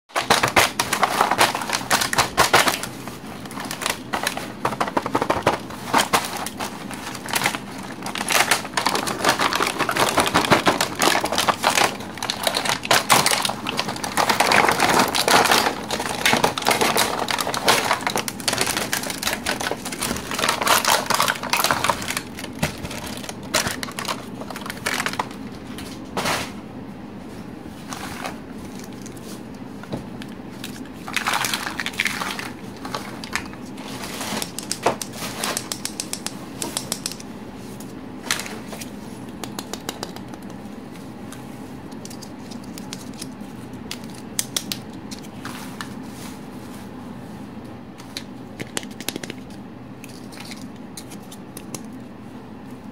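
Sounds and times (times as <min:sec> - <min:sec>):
plastic packaging crinkling: 0:00.1 - 0:25.6, 0:30.4 - 0:36.1.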